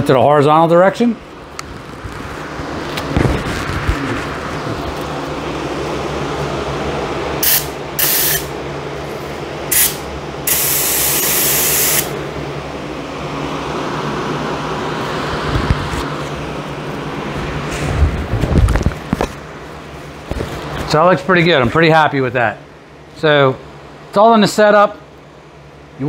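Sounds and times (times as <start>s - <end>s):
exhaust fan running: 0.0s - 26.0s
spray gun hissing: 7.4s - 8.5s, 9.7s - 12.2s.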